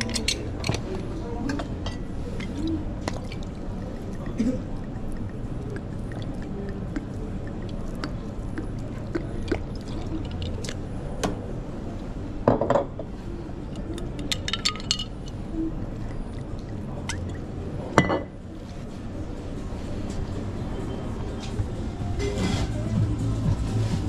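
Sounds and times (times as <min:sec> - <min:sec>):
dishes and utensils clinking: 0:00.0 - 0:05.0, 0:13.8 - 0:15.4, 0:17.0 - 0:18.4.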